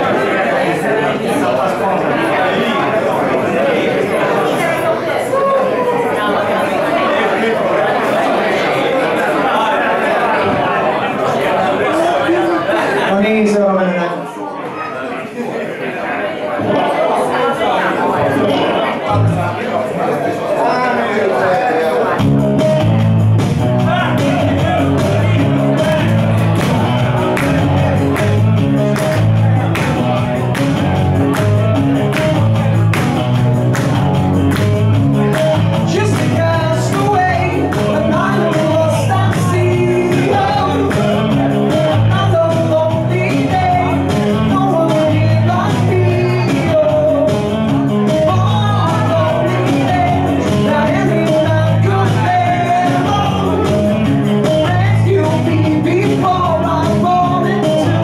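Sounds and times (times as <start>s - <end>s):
electric guitar: 22.1s - 58.0s
man singing into a microphone: 35.8s - 58.0s.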